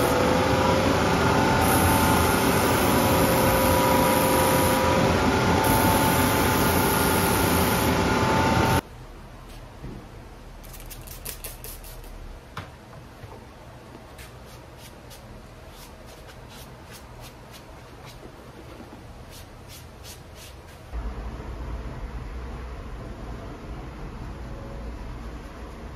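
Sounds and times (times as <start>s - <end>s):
sanding belt machine whining: 0.0s - 8.8s
sponge rubbing on leather: 14.2s - 18.3s.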